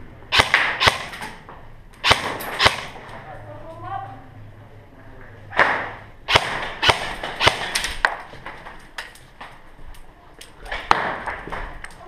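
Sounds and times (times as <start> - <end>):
airsoft gunfire cracks: 0.3 - 1.4, 2.0 - 3.0, 5.6 - 8.2.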